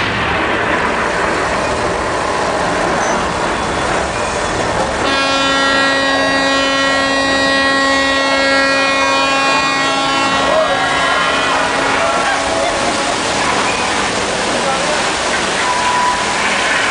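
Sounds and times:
noisy hiss: 0.0 - 16.9
horn blaring steady note: 5.0 - 15.2.

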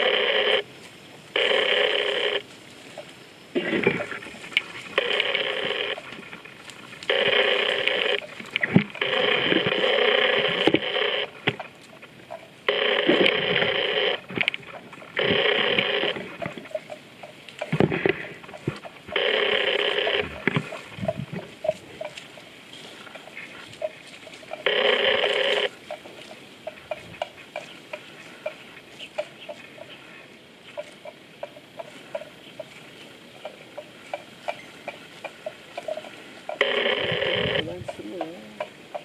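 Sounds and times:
animal neck bell rattling: 16.2 - 18.6.

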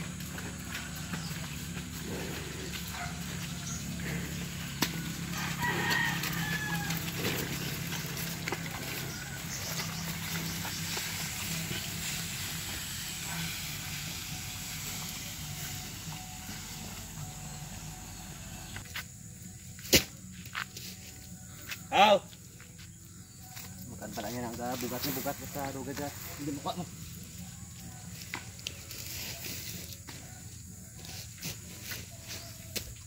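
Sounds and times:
steady low hum: 0.0 - 21.7
rooster crowing: 5.0 - 7.6, 8.7 - 10.0.

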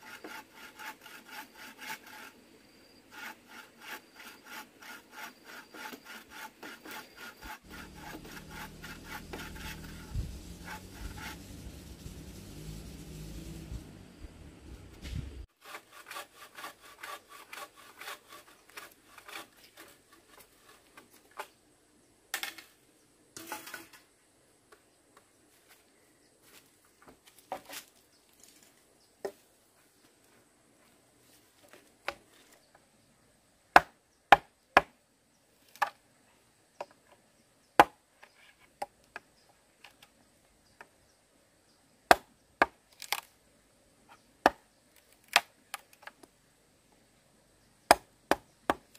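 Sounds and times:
sawing wood: 0.0 - 21.0.

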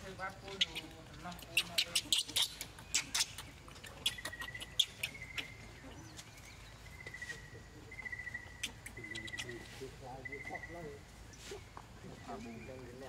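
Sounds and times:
infant monkey squeaks: 0.5 - 6.2, 8.0 - 10.7.

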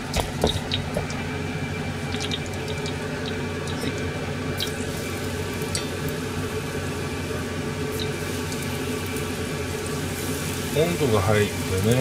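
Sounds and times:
oil popping: 0.0 - 6.2
low hum: 0.0 - 10.1
deep-frying oil sizzling: 0.0 - 12.0.

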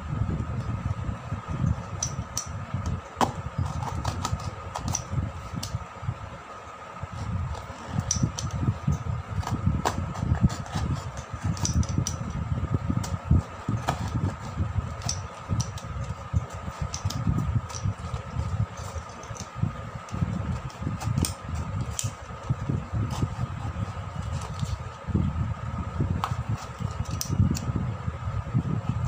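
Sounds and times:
fan hum: 0.0 - 29.0
blade cutting cardboard: 3.2 - 5.1, 9.3 - 12.0, 13.0 - 19.6, 20.2 - 25.0.

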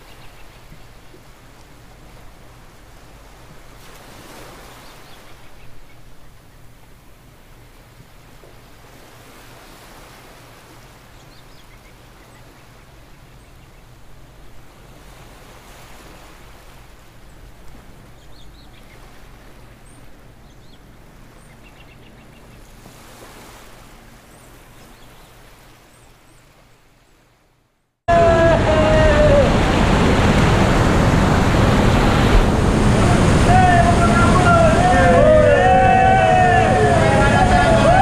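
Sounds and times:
river rushing through canyon: 28.1 - 38.0.

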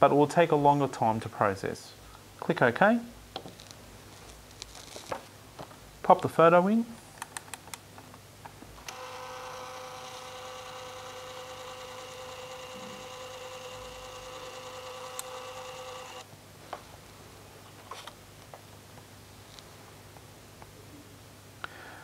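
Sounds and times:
scanner motor whine: 8.9 - 16.3
scanner click: 15.0 - 16.2.

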